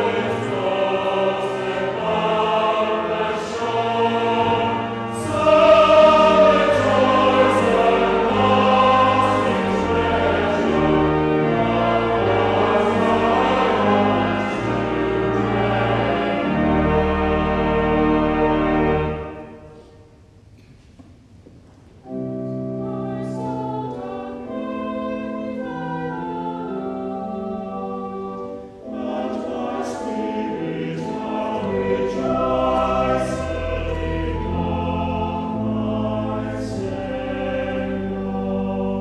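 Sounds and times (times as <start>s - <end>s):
choir singing: 0.0s - 19.9s, 22.1s - 39.0s
organ chords: 0.0s - 19.9s, 22.0s - 39.0s
deep organ bass: 31.2s - 39.0s.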